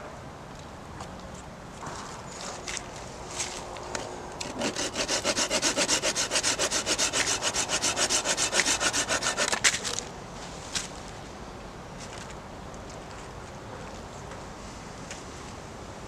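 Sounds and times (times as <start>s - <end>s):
saw cutting wooden branch: 4.4s - 10.0s.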